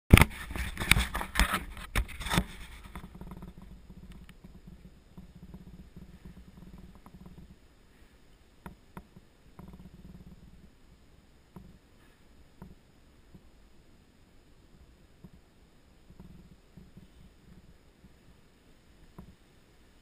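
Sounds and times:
small clicks: 0.1 - 7.6
camera handling knocks and rubbing: 0.2 - 7.4
faint low rumble: 0.4 - 20.0.

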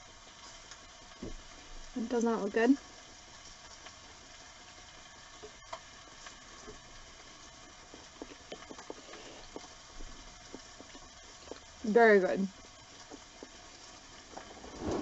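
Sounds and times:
chicken sizzling on grill: 0.0 - 15.0
small clicks and taps: 7.9 - 11.7, 12.6 - 13.6.

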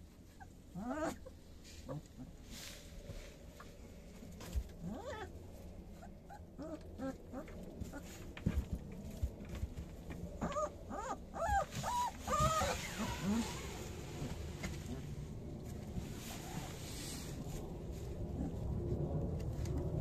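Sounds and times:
puppies whining and squealing: 0.2 - 2.1, 4.8 - 5.3, 6.0 - 8.0, 10.4 - 14.2.

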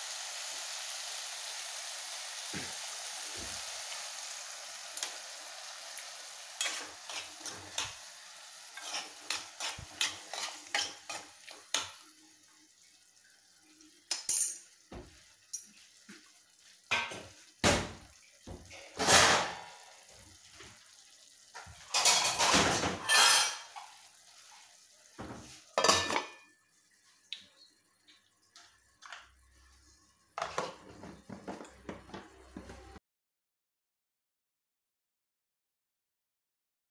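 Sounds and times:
food hissing while cooking: 0.0 - 14.0
utensil scraping metal pot: 6.6 - 8.0, 8.7 - 11.8, 22.0 - 23.7.

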